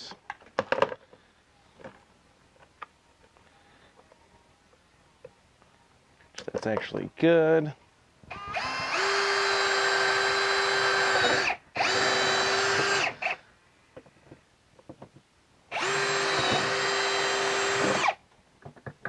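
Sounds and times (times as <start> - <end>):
cordless drill whining: 8.3 - 13.4, 15.7 - 18.2.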